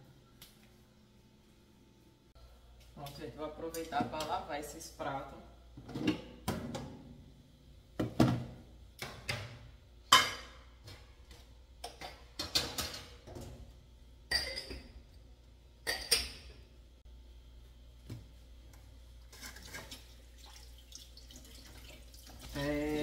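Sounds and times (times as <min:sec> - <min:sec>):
kitchenware knocking and clattering: 0:11.8 - 0:13.5.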